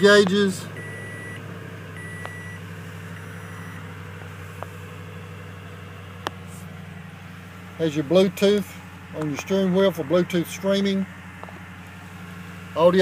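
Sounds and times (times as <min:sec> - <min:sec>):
high dashboard chime beep: 0:00.0 - 0:01.4, 0:02.0 - 0:03.9
engine idling low hum: 0:00.0 - 0:13.0.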